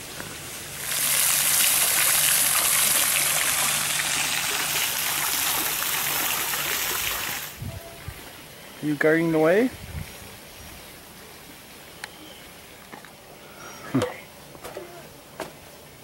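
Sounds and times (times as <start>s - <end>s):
water rushing: 0.0s - 9.6s.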